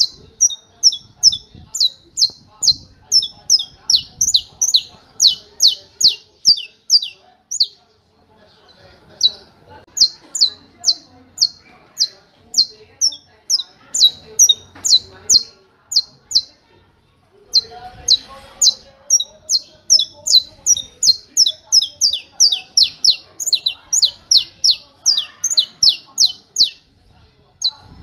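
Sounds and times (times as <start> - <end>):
finch singing sharp high notes: 0.0 - 7.8, 17.5 - 26.8.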